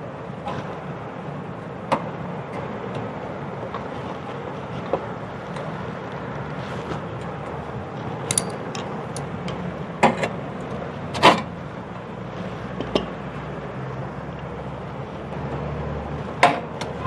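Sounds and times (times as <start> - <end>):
low background noise: 0.0 - 17.0
metal clinks and knocks: 8.3 - 9.3.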